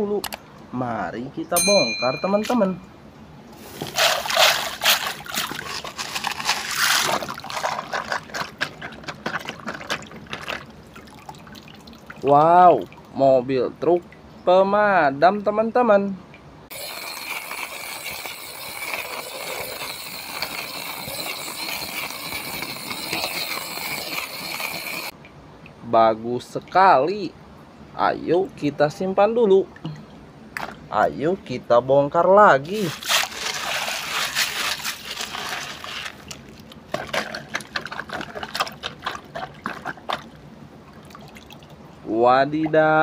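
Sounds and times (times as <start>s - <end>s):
wet gravel crunching: 3.6s - 11.2s, 32.7s - 40.2s
toy truck rattling over pebbles: 3.8s - 10.6s, 16.7s - 25.1s, 32.7s - 39.0s.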